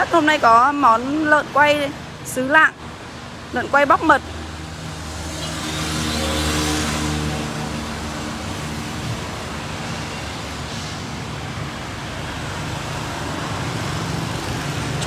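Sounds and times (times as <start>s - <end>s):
steady traffic hum: 0.0s - 15.0s
engine passing: 1.0s - 15.0s.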